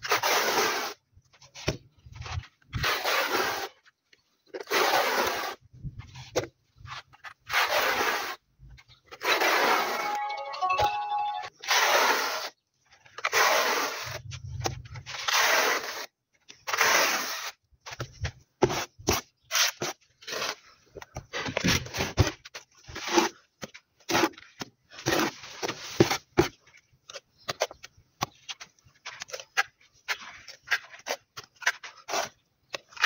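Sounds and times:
trowel scraping through adhesive: 0:00.0 - 0:01.0, 0:02.7 - 0:03.9, 0:04.5 - 0:05.7, 0:07.1 - 0:08.4, 0:09.1 - 0:10.2, 0:11.6 - 0:14.3, 0:15.0 - 0:17.6, 0:18.6 - 0:20.8, 0:30.1 - 0:33.0.

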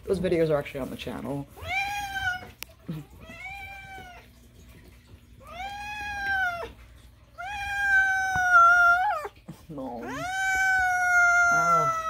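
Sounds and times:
cat meowing: 0:01.6 - 0:04.4, 0:05.4 - 0:12.0.

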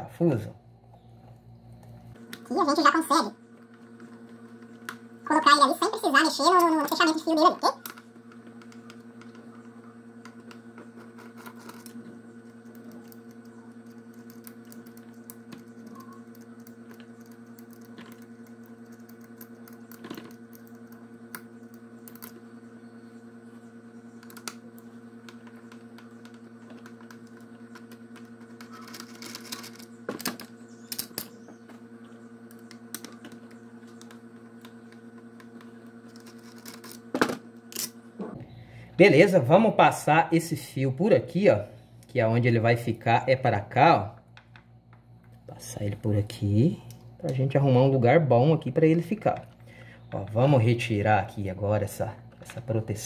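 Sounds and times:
steady low hum: 0:00.0 - 0:53.0
small parts clicking and tapping: 0:10.2 - 0:22.4, 0:25.3 - 0:31.8, 0:32.5 - 0:38.0.

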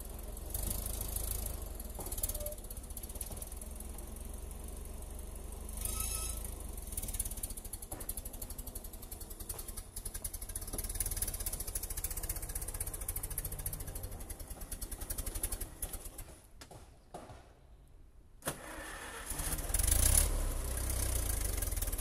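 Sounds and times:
forklift engine running: 0:00.0 - 0:16.4.

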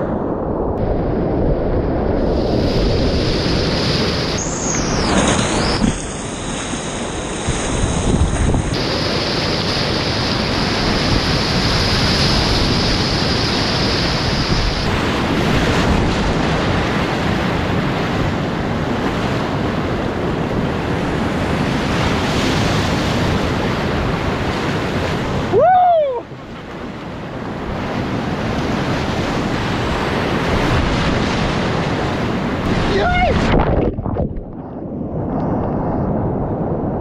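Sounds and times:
whitewater rapids rushing: 0:02.6 - 0:16.6.

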